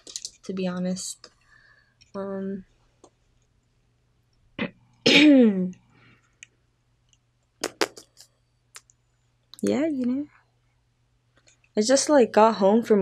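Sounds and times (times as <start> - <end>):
person clearing throat: 4.6 - 5.6.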